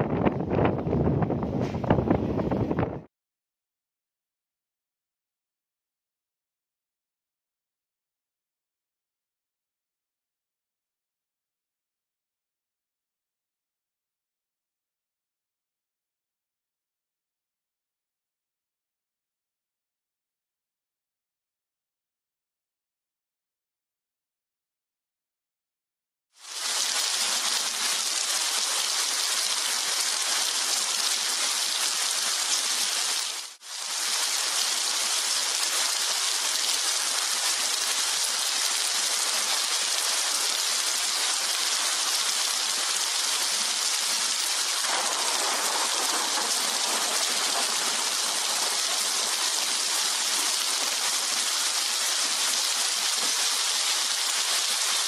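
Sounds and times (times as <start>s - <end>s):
heavy rain falling: 26.4s - 55.0s.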